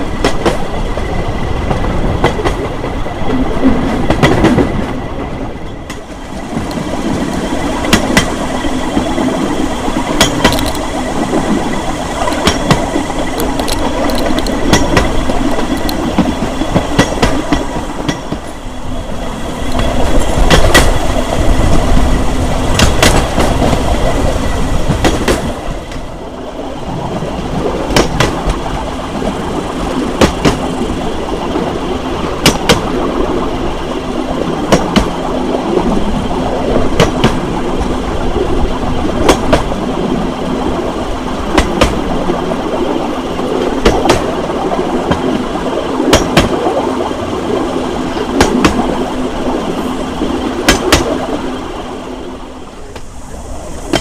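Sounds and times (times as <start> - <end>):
wheels clicking over rail joints: 0.0 - 18.7, 19.6 - 24.3, 24.9 - 26.2, 27.5 - 33.8, 34.4 - 51.4, 53.8 - 54.0
steel wheels rumbling on rails: 0.0 - 54.0.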